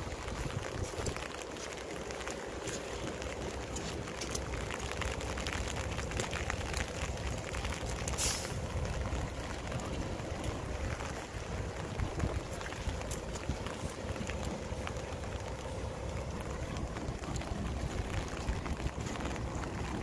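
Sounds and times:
diesel truck engine rumbling: 0.0 - 20.0
tyres hissing on wet concrete: 0.1 - 14.8
short sharp hiss: 8.2 - 8.6.

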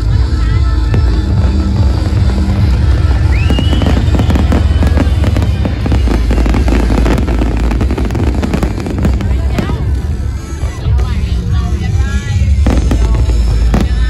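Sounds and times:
loud music with heavy bass: 0.0 - 14.0
fireworks banging and crackling: 0.1 - 14.0
rising firework whistle: 2.8 - 9.1.

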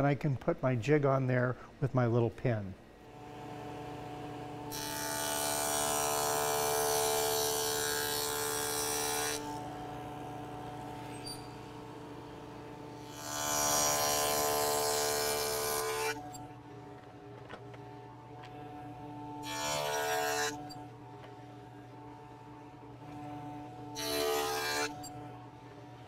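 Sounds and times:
table saw cutting wood: 3.2 - 16.4, 18.7 - 20.8, 23.0 - 25.3
saw motor whining: 3.3 - 16.6, 18.6 - 21.0, 23.0 - 25.6.

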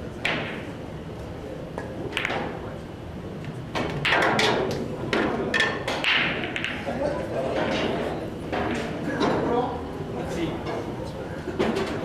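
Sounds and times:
pool cue striking ball: 0.2 - 0.7, 2.1 - 2.6, 3.7 - 7.0
pool balls clacking: 1.8 - 2.7, 3.7 - 9.6.

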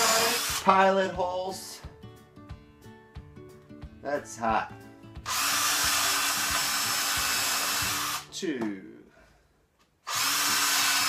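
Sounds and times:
power drill boring into wood: 0.0 - 0.7, 5.2 - 8.3, 10.0 - 11.0.

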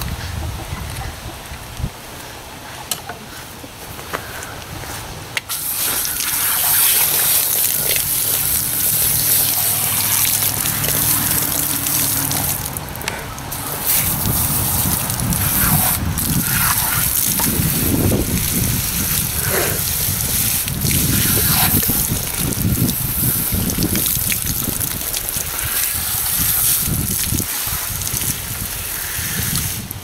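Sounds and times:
hose water spraying and splashing: 5.4 - 30.0.

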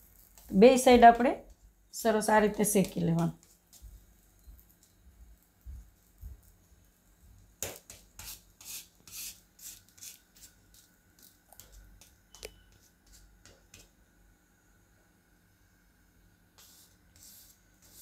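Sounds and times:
light spatula taps: 11.5 - 14.0
spatula scraping griddle: 16.6 - 18.0.

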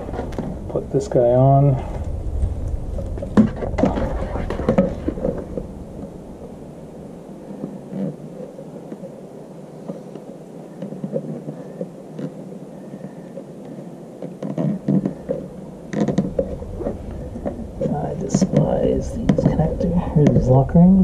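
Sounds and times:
electrical wire rustling and clicking: 0.0 - 1.2, 7.4 - 21.0
low rumble: 0.0 - 9.7, 14.8 - 21.0.

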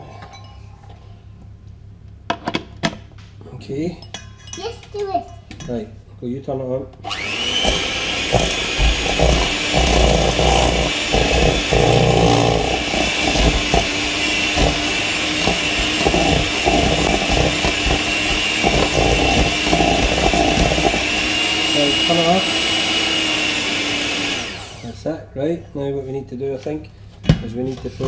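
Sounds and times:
hand mixer motor whining: 7.0 - 25.0
beaters scraping metal bowl: 7.2 - 22.7.

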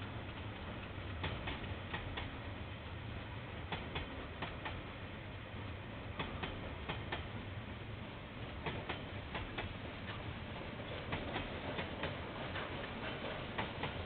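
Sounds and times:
train wheels clicking over rail joint: 0.0 - 3.0, 3.6 - 4.9, 6.2 - 7.4, 8.5 - 14.0
low train rumble: 0.0 - 14.0.

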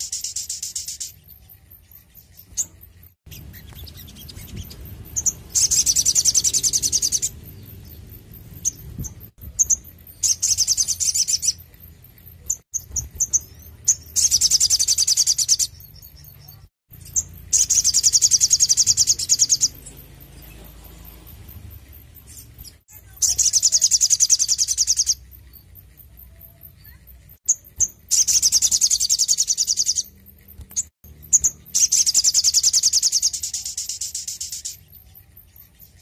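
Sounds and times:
bird singing rapid high notes: 0.0 - 25.9, 26.8 - 36.0
bird chirps: 0.0 - 36.0.

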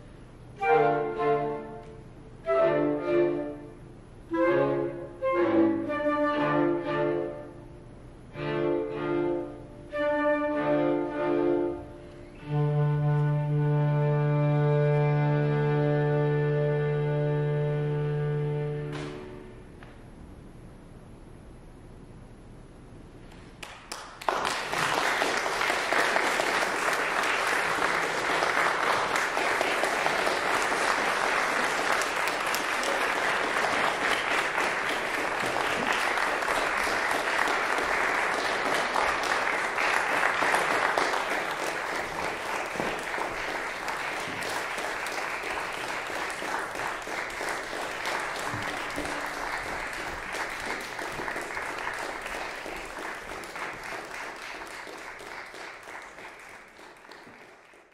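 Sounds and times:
audience applauding: 23.6 - 57.9.

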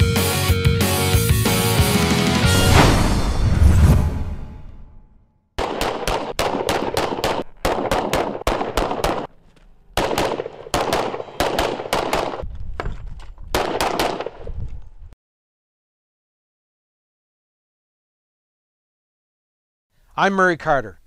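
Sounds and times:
handguns firing: 5.6 - 12.4, 13.5 - 14.5.

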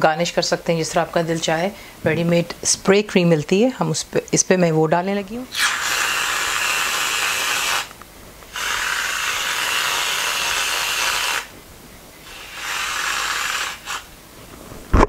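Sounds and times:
aerosol cream can hissing: 5.5 - 11.5, 12.2 - 14.1.

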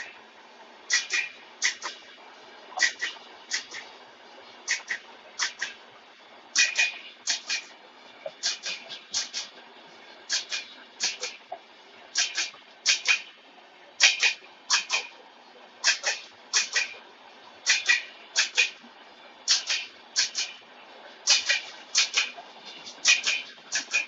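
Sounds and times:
faint rolling rumble: 0.0 - 23.8
train wheels clacking over rail joint: 0.9 - 2.1, 2.8 - 3.9, 4.6 - 5.8, 6.5 - 9.5, 10.3 - 11.4, 12.1 - 13.3, 14.0 - 15.2, 15.8 - 17.0, 17.6 - 20.6, 21.2 - 24.0.

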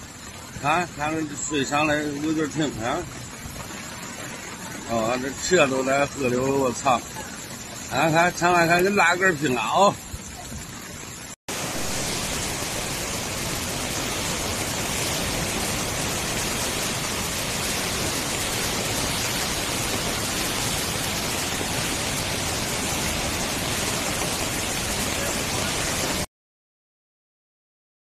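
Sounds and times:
muddy water rushing and churning: 0.0 - 26.3.

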